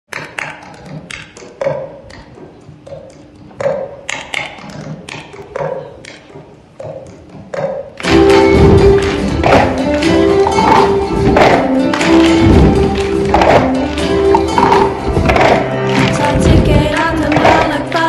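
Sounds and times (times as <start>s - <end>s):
music: 0.1s - 18.0s
plastic cups tapping on wooden floor: 12.5s - 13.7s.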